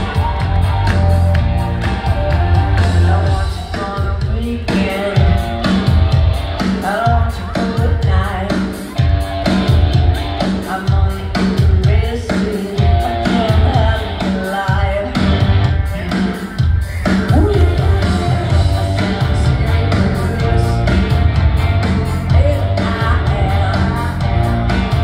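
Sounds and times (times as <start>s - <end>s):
heavy drum beat: 0.0s - 25.0s
live pop-rock band: 0.0s - 25.0s
woman singing: 2.7s - 5.9s, 6.6s - 9.0s, 10.5s - 25.0s.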